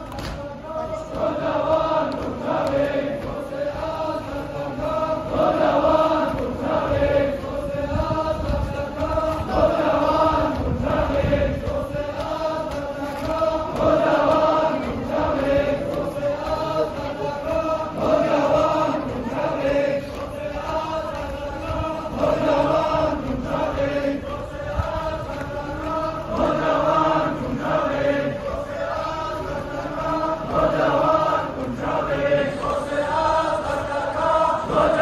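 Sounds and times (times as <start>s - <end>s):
men chanting in unison: 0.0s - 35.0s.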